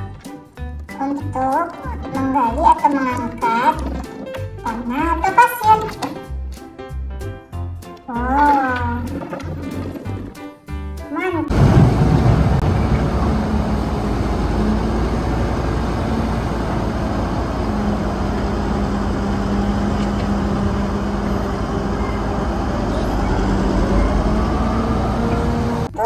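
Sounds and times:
wheel loader diesel engine running: 0:11.5 - 0:26.0.

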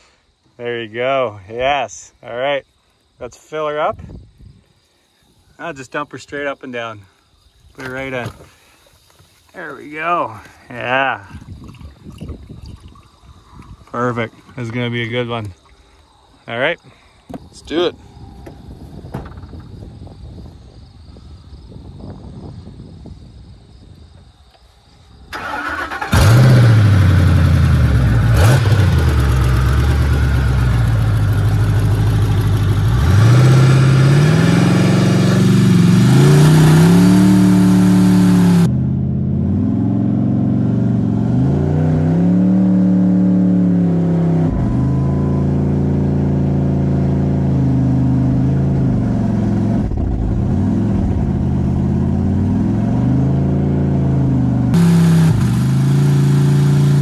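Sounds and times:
pickup engine revving: 0:25.4 - 0:57.0.

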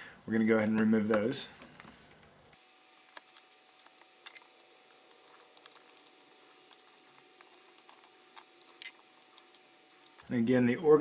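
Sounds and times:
screwdriver and screws clicking: 0:03.1 - 0:10.3.

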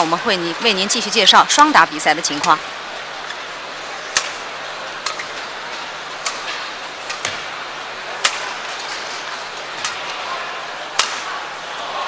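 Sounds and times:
indoor arena hum: 0:00.0 - 0:12.0
rackets hitting shuttlecock: 0:04.1 - 0:04.4, 0:06.2 - 0:07.5, 0:08.2 - 0:08.6, 0:10.9 - 0:11.4.

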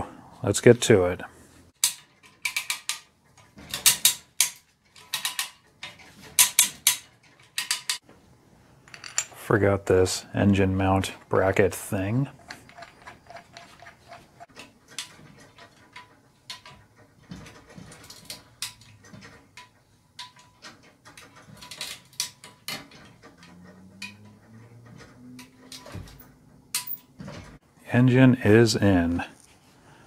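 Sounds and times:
chain hoist clicks and knocks: 0:01.8 - 0:08.0, 0:12.1 - 0:27.6.

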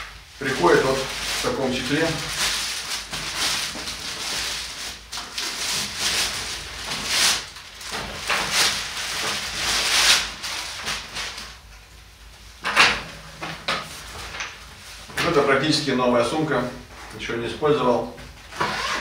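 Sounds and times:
bag cover rustling and crinkling: 0:00.4 - 0:11.6.

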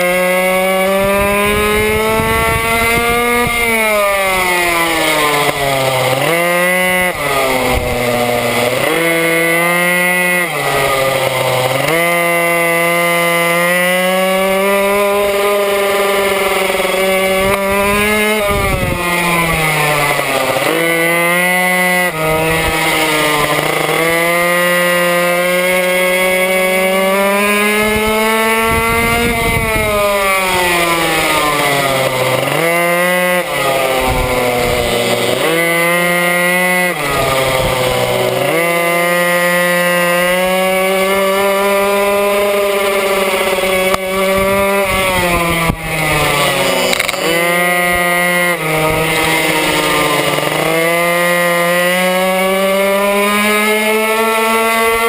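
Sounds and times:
small two-stroke engine racing: 0:00.0 - 0:55.0.

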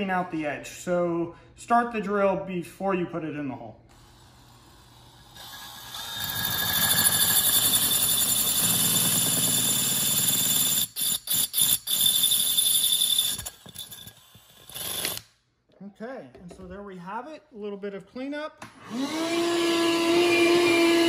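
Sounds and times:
drill grinding through ceramic: 0:03.9 - 0:15.2, 0:18.8 - 0:21.0.

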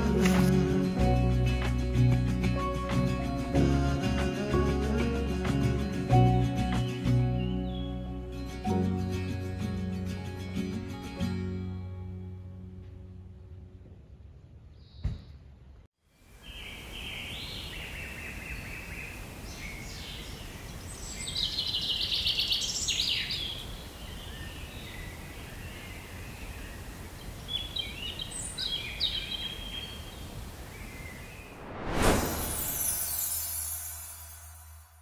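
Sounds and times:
wild birds singing: 0:05.7 - 0:09.1, 0:16.4 - 0:31.6
outdoor background hiss: 0:12.5 - 0:35.0.

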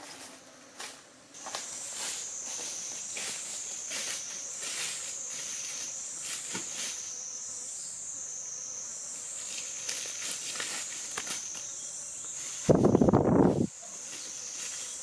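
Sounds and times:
insects droning: 0:00.0 - 0:15.0
footsteps in dry leaves: 0:01.4 - 0:07.1, 0:09.6 - 0:11.6.

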